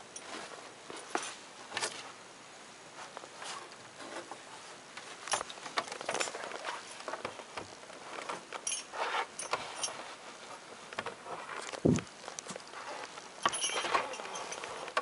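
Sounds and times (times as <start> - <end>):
knocks and scrapes on wooden framing: 3.4 - 4.7, 5.6 - 15.0.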